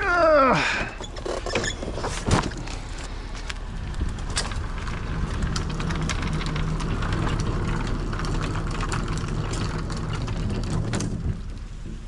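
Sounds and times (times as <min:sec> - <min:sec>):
plastic base scraping on asphalt: 0:00.9 - 0:12.0.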